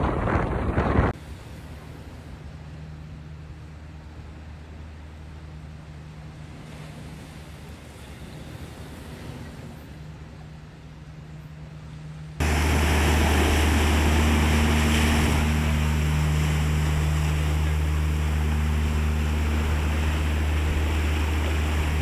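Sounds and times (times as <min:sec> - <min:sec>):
low rumble: 0:11.0 - 0:22.0
surf washing over rocks: 0:12.4 - 0:22.0.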